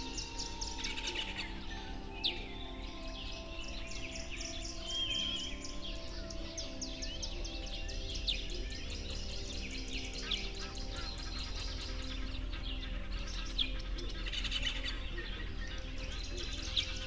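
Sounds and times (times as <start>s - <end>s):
soft background music: 0.0s - 17.0s
songbirds chirping and singing: 0.0s - 17.0s.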